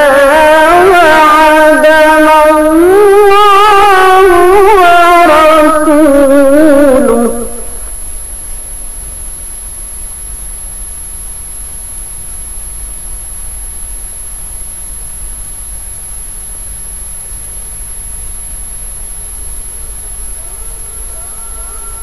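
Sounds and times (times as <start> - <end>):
person singing: 0.0 - 7.8
faint high-pitched whine: 0.0 - 22.0
recording hiss: 0.0 - 22.0
low hum: 17.8 - 22.0.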